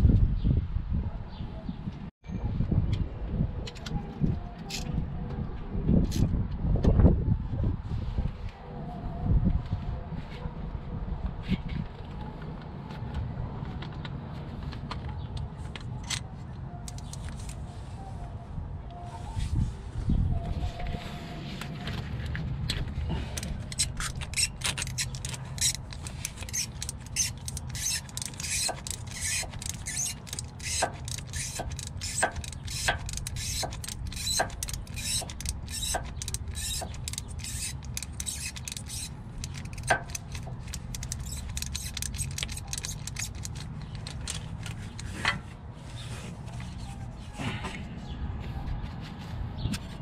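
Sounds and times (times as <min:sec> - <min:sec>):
ratcheting wrench clicking: 0:16.8 - 0:17.6, 0:23.3 - 0:45.2.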